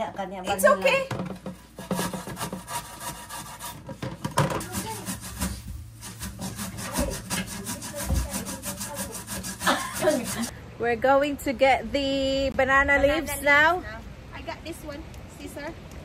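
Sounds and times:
sweet potato grated by hand: 4.6s - 10.5s.

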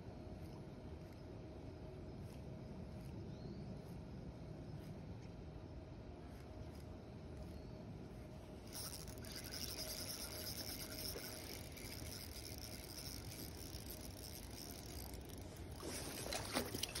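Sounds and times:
spinning reel being cranked: 8.7s - 17.0s
fish splashing at water surface: 15.8s - 17.0s.

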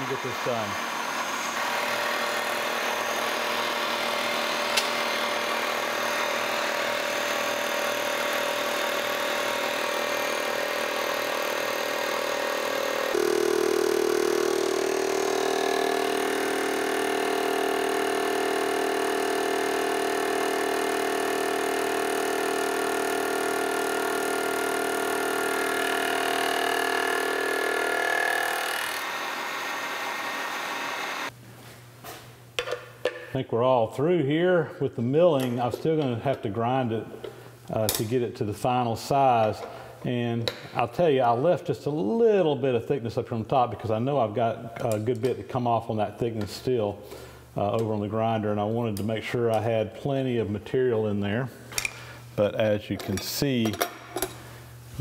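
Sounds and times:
milling machine cutting metal: 0.0s - 31.3s.

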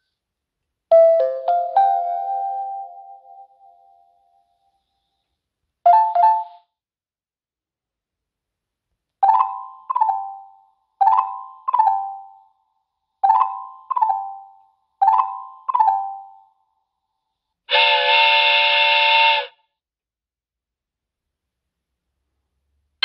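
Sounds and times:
xylophone doorbell chime: 5.9s - 6.6s, 9.2s - 12.4s, 13.2s - 16.5s.

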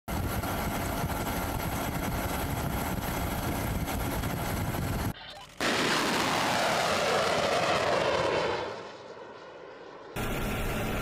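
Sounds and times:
loud choppy rumbling: 0.1s - 5.1s.

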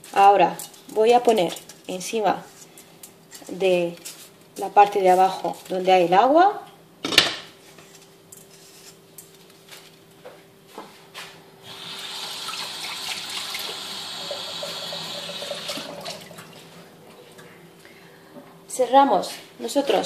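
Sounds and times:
water running: 11.7s - 17.6s.

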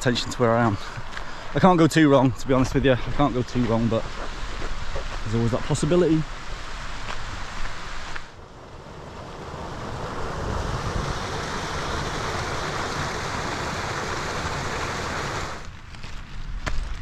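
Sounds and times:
stream water rushing: 0.0s - 15.7s
footsteps on gravel: 2.2s - 8.4s, 15.6s - 17.0s.

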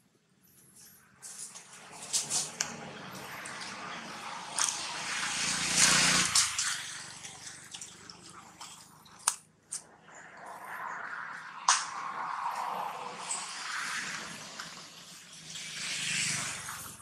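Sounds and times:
animals scuffling on dry leaves: 1.2s - 3.8s.

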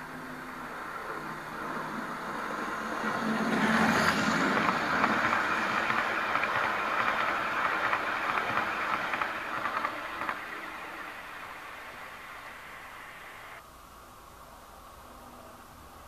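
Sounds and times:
model train wheels rattling on track: 2.5s - 12.5s.

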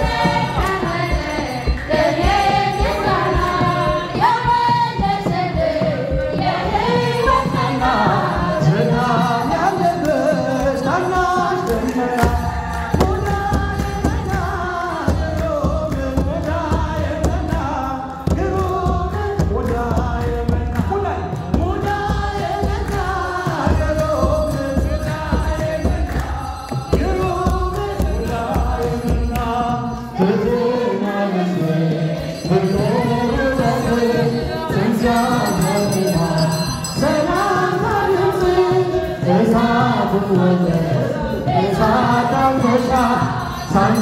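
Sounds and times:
group singing a hymn: 0.0s - 44.0s.

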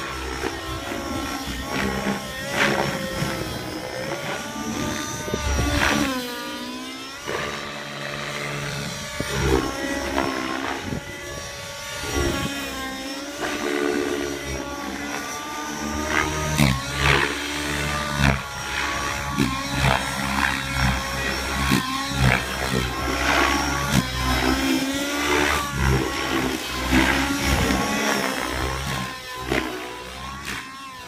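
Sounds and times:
model helicopter engine running: 0.0s - 31.0s.

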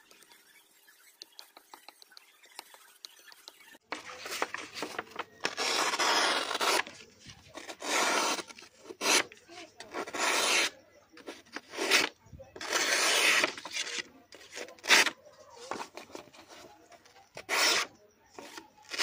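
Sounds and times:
abrasive scraping on knife: 5.4s - 19.0s.

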